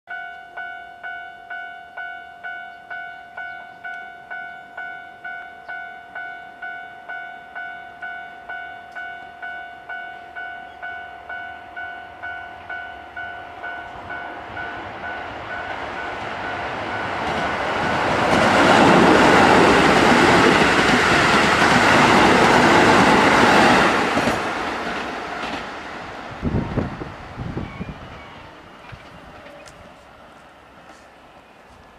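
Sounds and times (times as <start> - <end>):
level-crossing warning bell: 0.1 - 23.3
electric train passing: 0.1 - 31.9
train wheels clattering on rails: 15.0 - 26.0.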